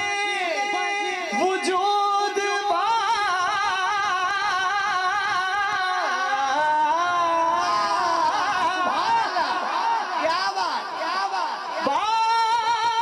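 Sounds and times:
man singing into a microphone: 0.0s - 13.0s.

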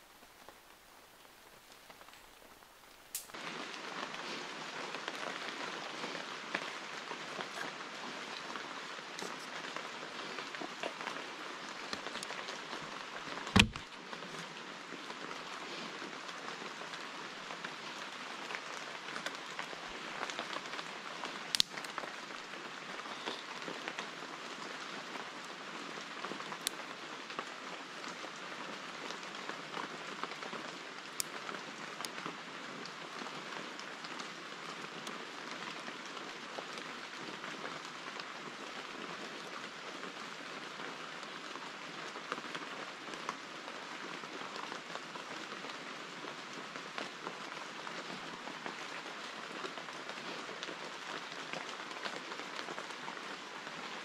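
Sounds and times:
rain pattering on foliage: 0.0s - 54.0s
sharp knocks: 13.6s - 13.8s.

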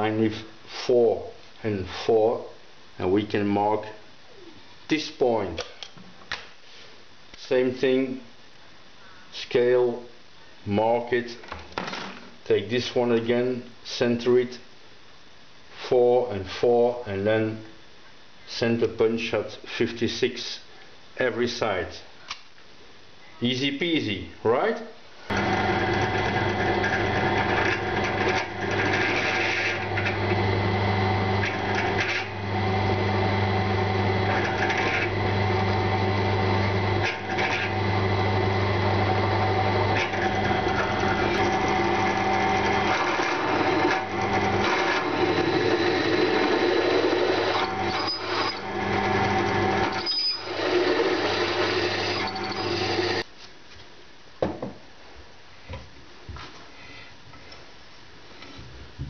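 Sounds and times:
drill press motor hum: 25.3s - 53.2s.

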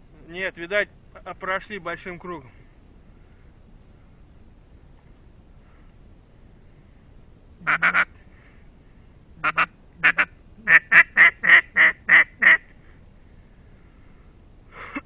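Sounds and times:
duck call quacks: 7.6s - 8.1s, 9.4s - 12.7s.

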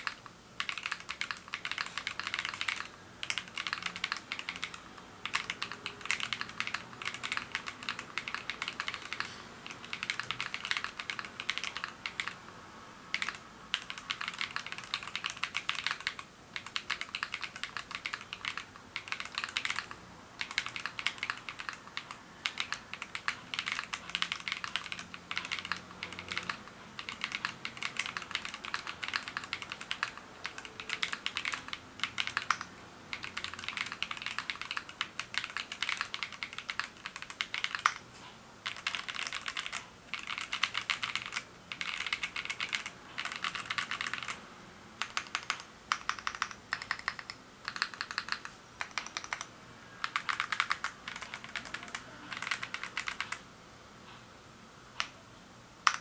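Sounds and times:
mechanical keyboard key clacks: 45.0s - 53.4s.

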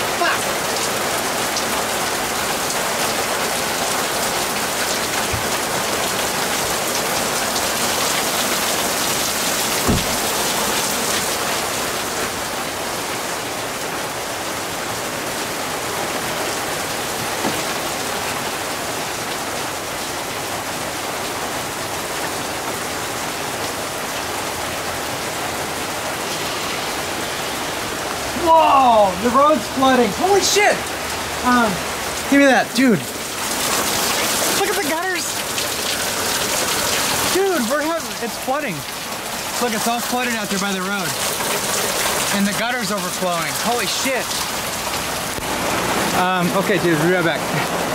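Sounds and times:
heavy rain pouring: 0.0s - 47.9s
sharp knock: 9.8s - 10.3s.

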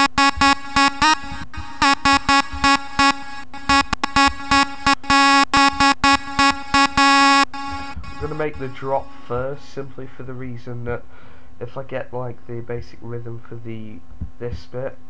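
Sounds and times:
synth lead staccato stabs: 0.0s - 9.8s.

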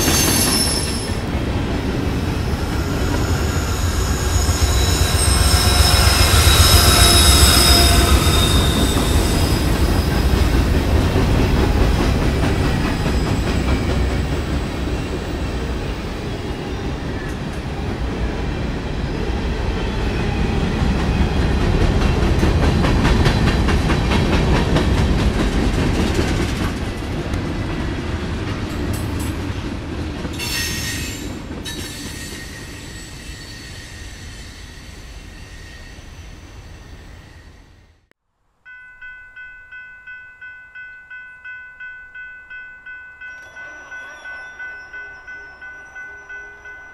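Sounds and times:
freight train cars rolling: 0.0s - 37.7s
high-pitched wheel squeal: 2.6s - 10.3s.

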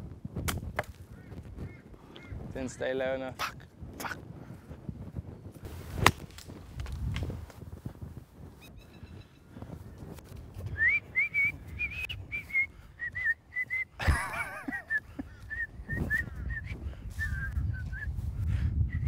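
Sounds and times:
high whistled notes: 10.8s - 13.9s.

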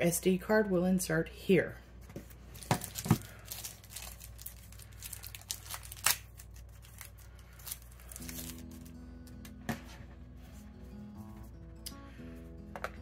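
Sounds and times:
plastic film crinkling and tearing: 2.5s - 9.0s
background music: 8.0s - 13.0s.

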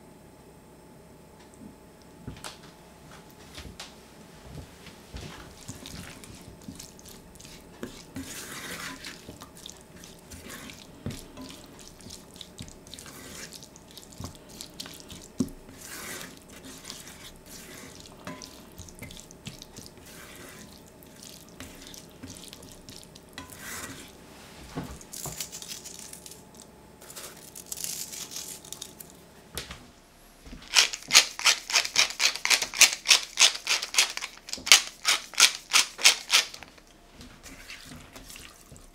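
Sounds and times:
spatula scraping frying pan: 5.4s - 24.2s, 30.8s - 36.8s, 37.4s - 38.5s
pepper mill grinding: 25.1s - 29.1s, 30.7s - 36.9s.

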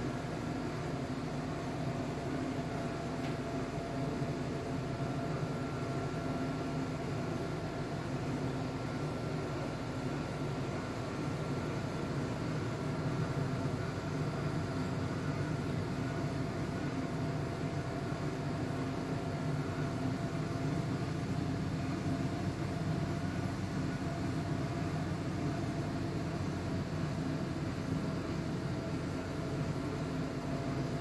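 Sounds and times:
mechanical hum: 0.0s - 31.0s.

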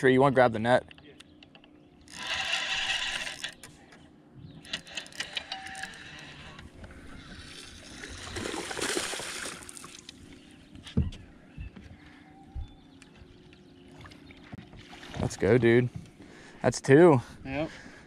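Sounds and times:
water splashing: 7.4s - 10.1s, 14.0s - 15.6s.

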